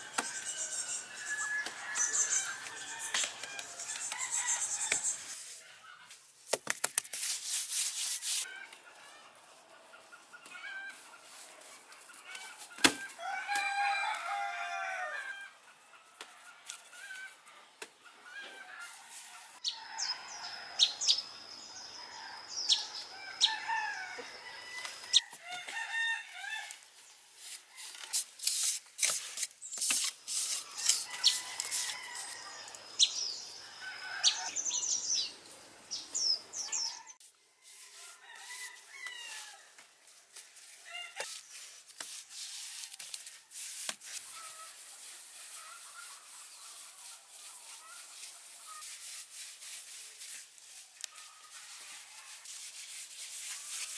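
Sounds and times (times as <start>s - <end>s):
rooster crowing: 13.1s - 15.6s, 36.8s - 39.7s
small birds chirping: 29.6s - 37.2s.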